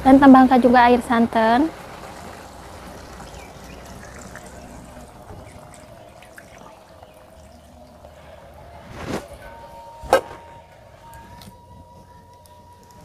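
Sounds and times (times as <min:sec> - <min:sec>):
liquid pouring into a wok: 0:01.7 - 0:08.6.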